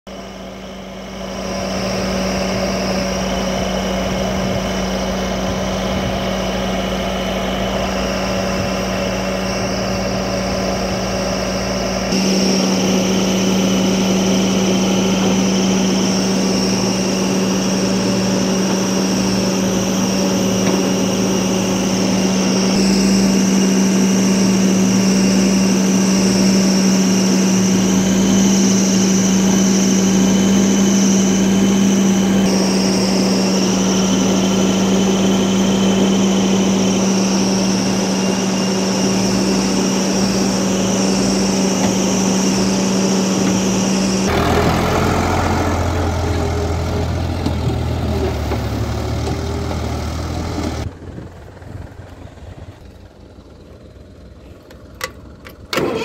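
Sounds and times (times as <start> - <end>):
diesel engine running: 0.1 - 56.0
backhoe arm digging soil: 41.1 - 50.9.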